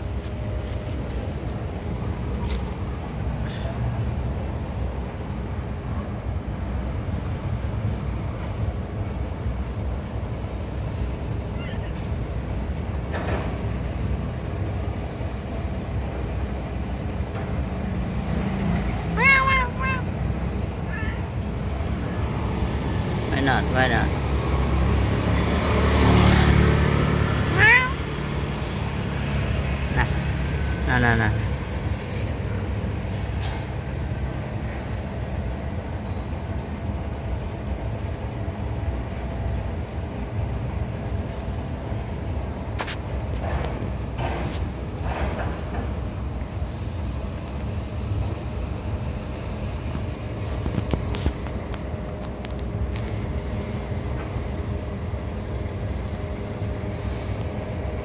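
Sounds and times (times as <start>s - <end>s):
low outdoor rumble: 0.0s - 25.0s
low rumble of traffic: 0.0s - 58.0s.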